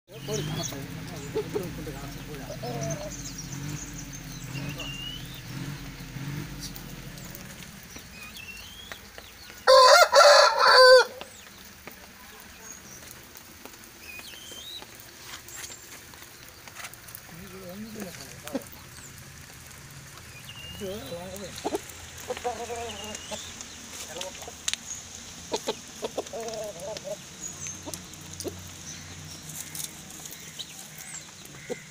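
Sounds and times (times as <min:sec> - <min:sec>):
rooster crowing: 0:09.6 - 0:11.3
rooster clucking: 0:21.3 - 0:23.5, 0:25.5 - 0:27.2.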